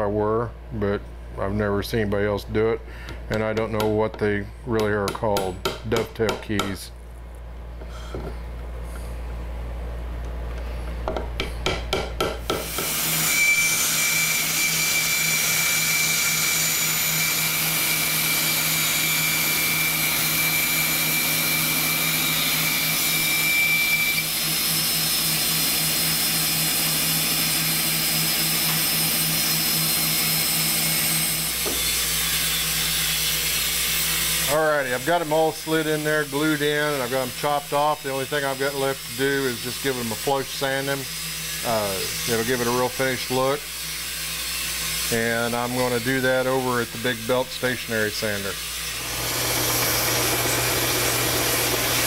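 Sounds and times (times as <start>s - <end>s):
bandsaw cutting wood: 12.5s - 52.0s.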